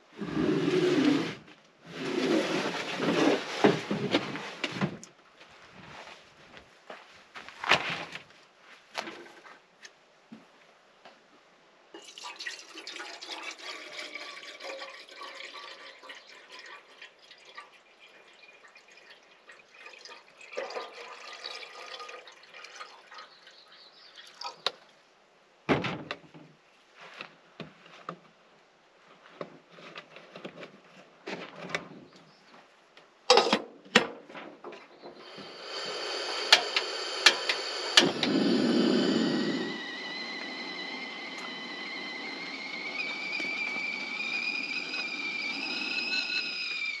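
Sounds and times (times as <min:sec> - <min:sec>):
water pouring into a kettle: 0:12.0 - 0:23.4, 0:35.2 - 0:47.0
gas stove burner hissing: 0:35.2 - 0:47.0.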